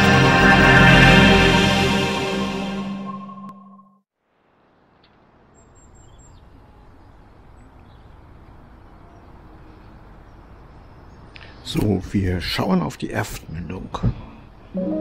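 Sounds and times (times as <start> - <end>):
steady low outdoor noise: 4.2 - 15.0.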